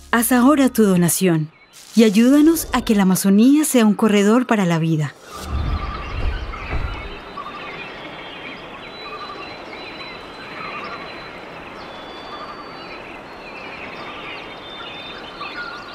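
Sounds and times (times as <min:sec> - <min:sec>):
high insect-like tones: 0:01.7 - 0:03.1
birds chirping and calling: 0:05.2 - 0:15.9.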